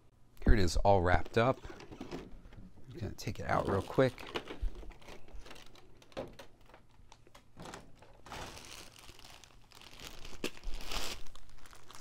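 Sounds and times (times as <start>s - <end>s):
plastic packaging crinkling: 3.2s - 12.0s.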